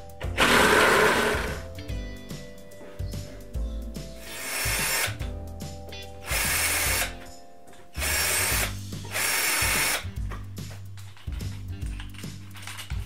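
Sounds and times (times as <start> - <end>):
cordless drill running: 0.4 - 1.6, 4.2 - 5.2, 6.2 - 7.1, 8.0 - 10.0.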